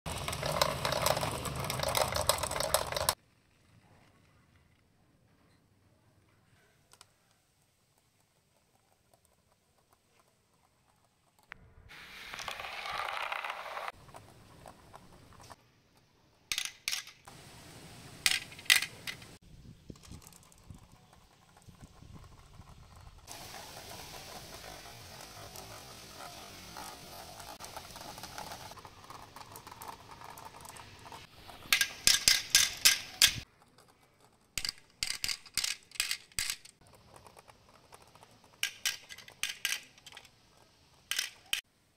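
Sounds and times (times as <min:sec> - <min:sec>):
marbles clicking together: 0:00.1 - 0:03.2, 0:12.3 - 0:14.0, 0:31.6 - 0:40.4, 0:41.0 - 0:41.6
marbles rolling in plastic track: 0:00.1 - 0:03.2, 0:12.1 - 0:15.6, 0:18.3 - 0:41.6.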